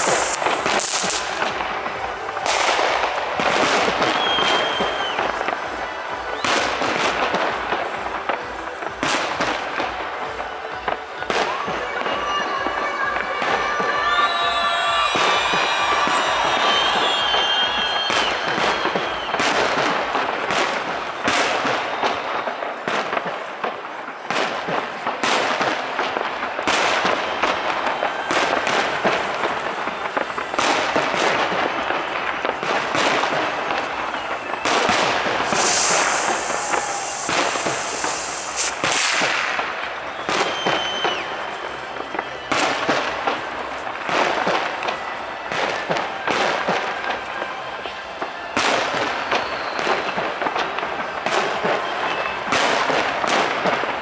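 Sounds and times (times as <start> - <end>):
firework shells bursting: 0.0 - 1.5, 26.6 - 39.8
hissing crackle of fireworks: 0.0 - 54.0.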